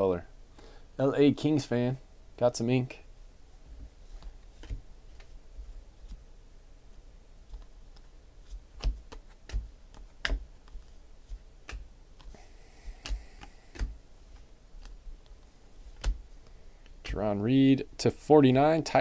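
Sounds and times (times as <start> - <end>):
cards clicking against a stack: 8.7 - 12.3, 13.0 - 16.2.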